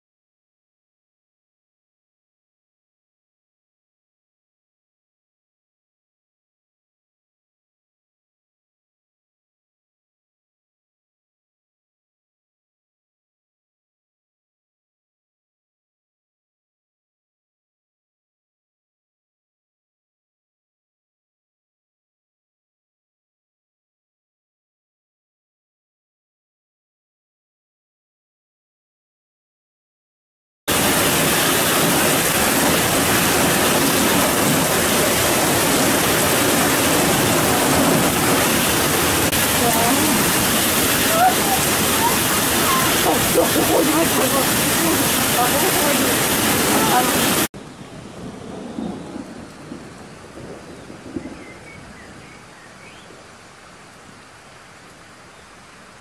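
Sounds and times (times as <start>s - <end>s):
heavy rain downpour: 30.7s - 56.0s.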